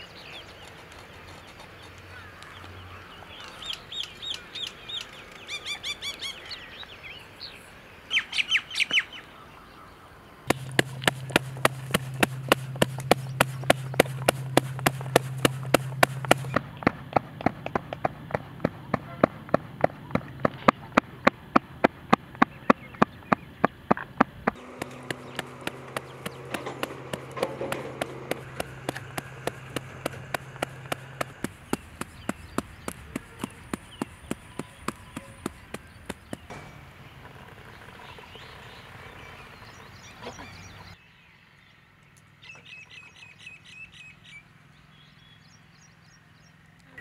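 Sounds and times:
birds chirping: 0.0s - 47.0s
hands patting dough on steel: 10.5s - 16.6s, 24.5s - 36.5s.

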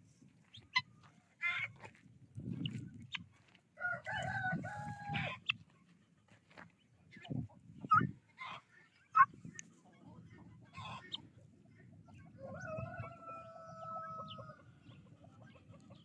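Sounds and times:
fowl clucking: 0.5s - 1.9s, 2.6s - 5.7s, 7.2s - 9.4s, 10.0s - 11.3s
rooster crowing: 3.8s - 5.3s, 12.4s - 14.6s.

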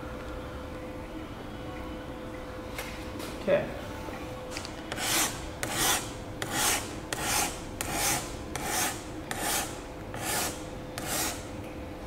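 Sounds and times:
hand file rasping: 4.9s - 11.4s.

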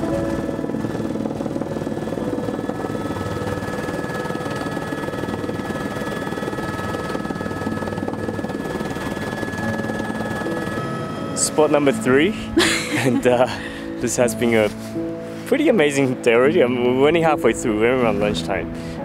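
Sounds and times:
thin high whine: 0.0s - 14.2s
helicopter engine and rotor noise: 0.0s - 19.0s.

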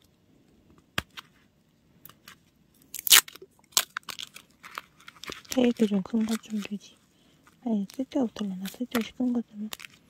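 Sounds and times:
tape clicks and crinkles: 2.0s - 6.9s, 7.5s - 10.0s.

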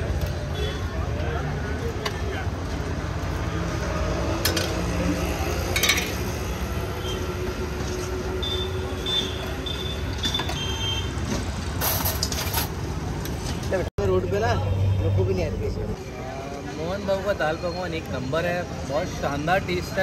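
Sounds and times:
street traffic rumble: 0.0s - 20.0s
steel ladle clinking on plates: 5.7s - 6.2s.

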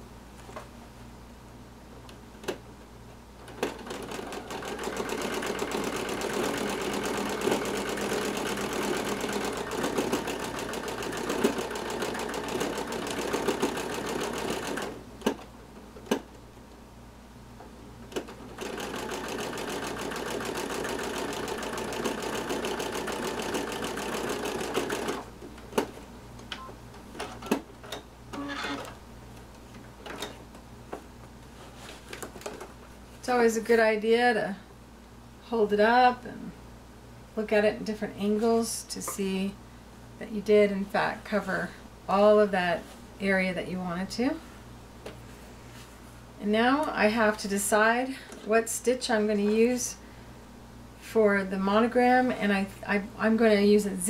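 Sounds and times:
sewing machine stitching: 3.4s - 15.0s, 18.1s - 25.3s.

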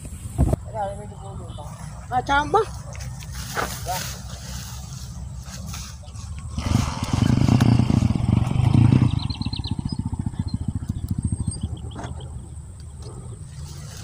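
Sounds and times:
small engine puttering: 5.6s - 14.0s
high bird chirps: 8.0s - 13.5s.

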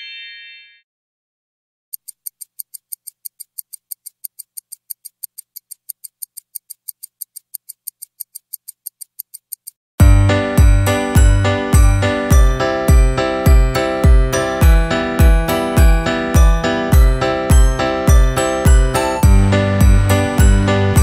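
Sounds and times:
rapid high-pitched ticking: 2.0s - 9.8s
music with deep bass beat: 10.0s - 21.0s.

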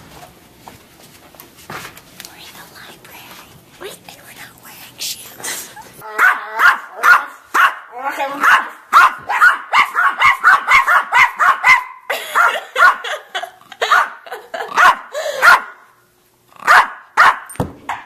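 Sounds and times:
dog barking: 6.1s - 13.2s, 13.8s - 15.8s, 16.6s - 17.5s.

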